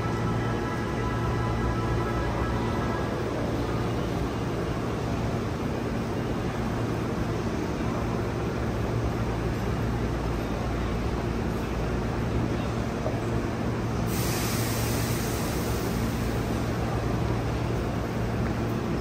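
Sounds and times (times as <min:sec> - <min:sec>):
electric train humming: 0:00.0 - 0:19.0
steady hiss: 0:14.0 - 0:17.1.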